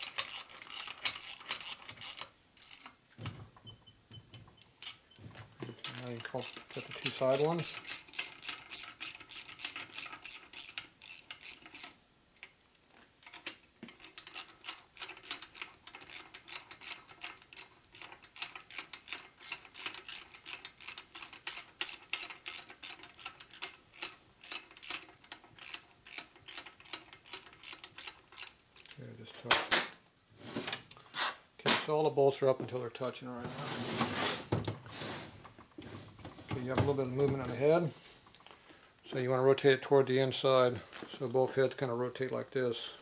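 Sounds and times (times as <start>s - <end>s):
hand ratchet clicking: 0.0s - 2.9s, 5.9s - 12.0s, 13.2s - 29.0s.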